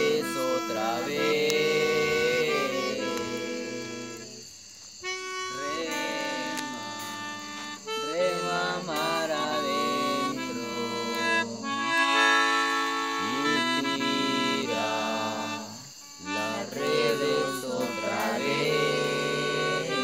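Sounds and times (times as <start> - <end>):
person singing: 0.0 - 4.5, 5.4 - 12.6, 13.2 - 20.0.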